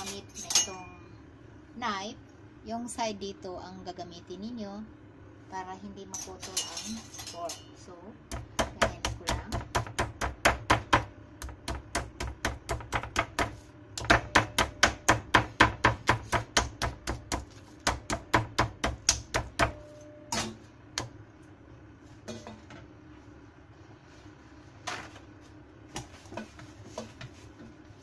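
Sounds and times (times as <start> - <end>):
meat mallet pounding: 8.3 - 19.9.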